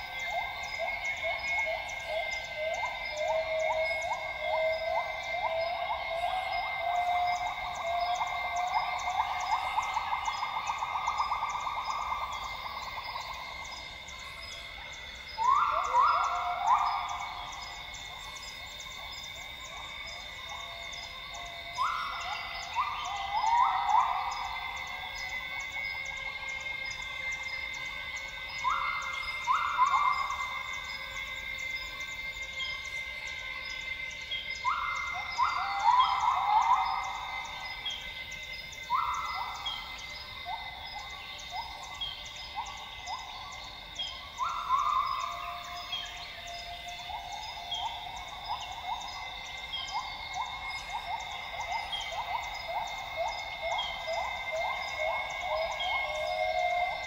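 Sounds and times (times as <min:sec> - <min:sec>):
insect drone: 0:00.0 - 0:57.0
insect pulsing: 0:00.0 - 0:57.0.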